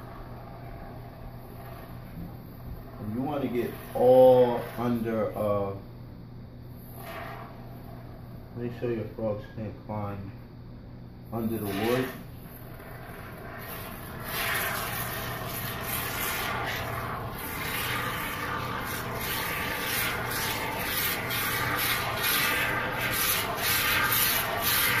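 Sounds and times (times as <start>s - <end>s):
spray foam can hissing: 13.5s - 25.0s.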